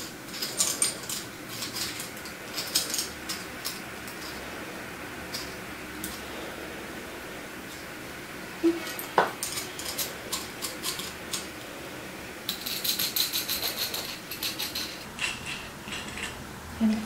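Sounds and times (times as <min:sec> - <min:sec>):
metal clicks and clinks: 0:00.3 - 0:04.4.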